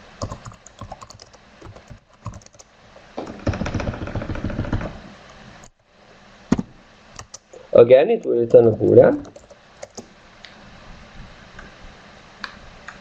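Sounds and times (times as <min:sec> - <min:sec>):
computer keyboard typing: 0:00.2 - 0:02.7, 0:07.2 - 0:07.6, 0:09.2 - 0:10.1.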